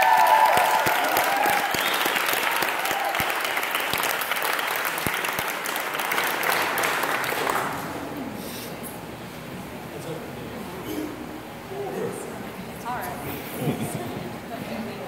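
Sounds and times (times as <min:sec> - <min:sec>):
crowd applauding: 0:00.0 - 0:08.0.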